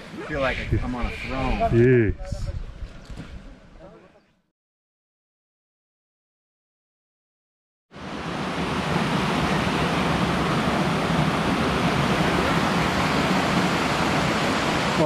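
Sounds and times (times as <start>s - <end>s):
fast-flowing river water: 8.0s - 15.0s.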